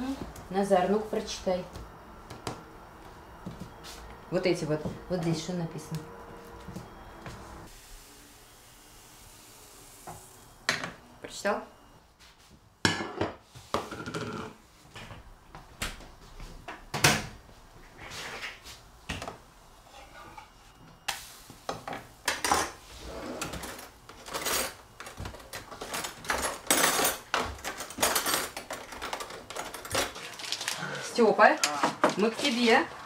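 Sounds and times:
pancake frying hiss: 7.7s - 10.6s.

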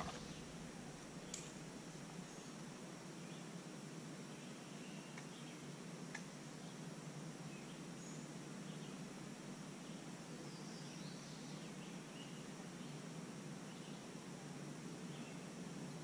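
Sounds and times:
steady hiss: 0.0s - 16.0s
faint click: 5.1s - 5.3s, 6.1s - 6.3s.

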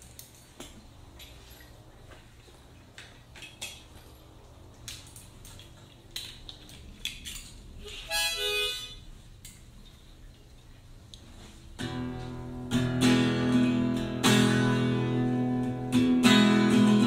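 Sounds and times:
metal clicks and clinks: 3.0s - 7.8s
harmonica chord: 7.8s - 9.0s.

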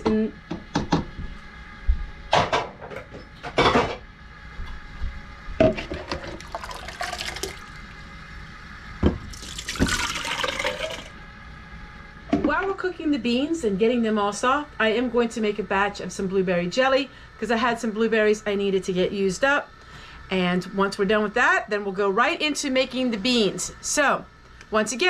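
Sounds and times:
water pouring into pot: 6.2s - 7.8s, 9.3s - 11.1s.

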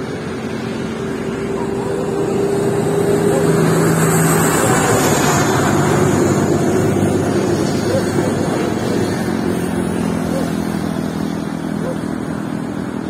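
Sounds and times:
rushing wind: 0.0s - 13.0s
vehicle engine drone: 0.0s - 13.0s.

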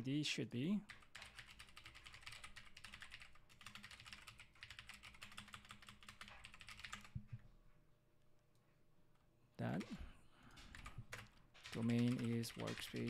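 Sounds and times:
typing on keyboard: 0.9s - 7.2s, 10.6s - 13.0s.

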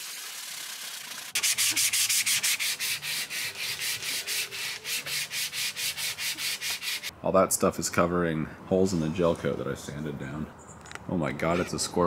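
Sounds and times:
sanding block scraping: 1.3s - 7.1s.

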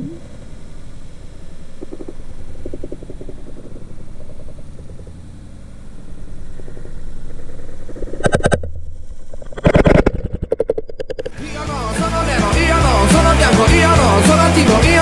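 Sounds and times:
underwater low rumble: 0.0s - 11.4s
rapid low rattling pulses: 0.0s - 15.0s.

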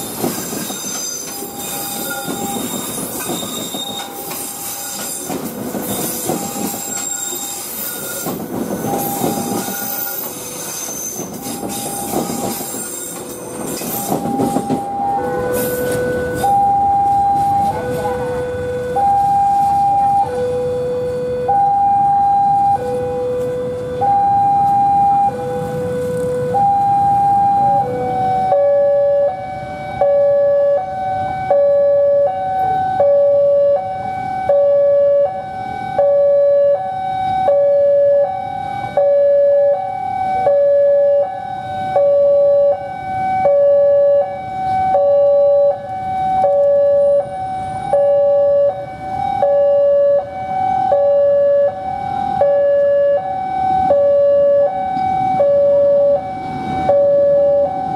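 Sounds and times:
two-tone level crossing alarm: 14.0s - 57.9s.

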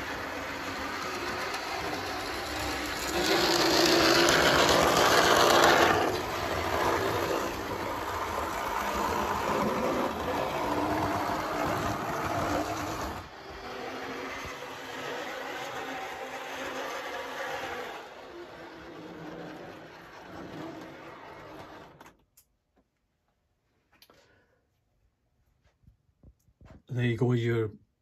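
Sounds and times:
model train motor whirring: 0.0s - 22.1s
wheels rumbling over rails: 0.0s - 22.2s.

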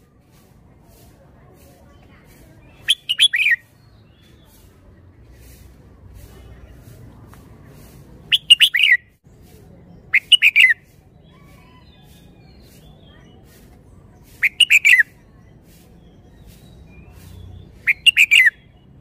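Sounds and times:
bird singing quick notes: 2.6s - 4.7s, 8.3s - 9.2s, 10.1s - 13.4s, 14.2s - 15.3s, 15.9s - 18.9s.

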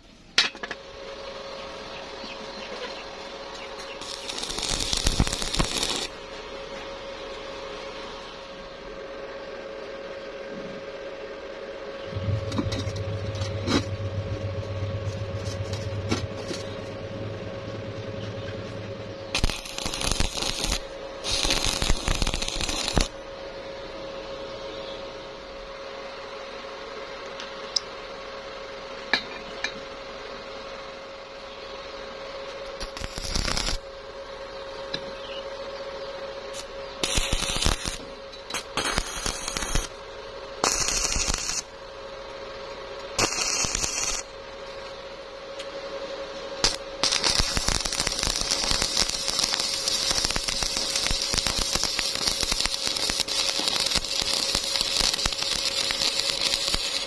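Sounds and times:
steady hum: 0.0s - 57.0s
arc welding crackle: 2.2s - 6.4s, 12.2s - 23.2s, 32.5s - 34.0s, 36.5s - 44.9s, 46.6s - 57.0s.

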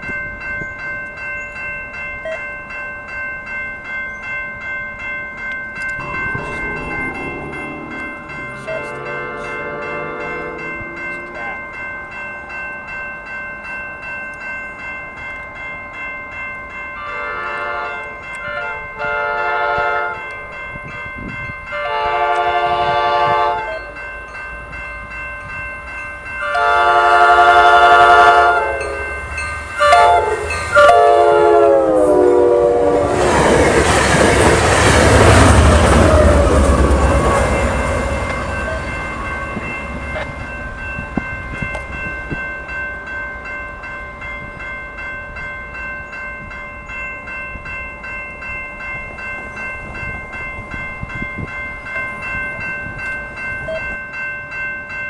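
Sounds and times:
train passing rush and rumble: 0.0s - 55.0s
train horn blasts: 6.0s - 11.6s, 17.0s - 20.3s, 21.7s - 23.9s, 26.4s - 29.2s, 29.8s - 33.2s, 35.4s - 38.9s.

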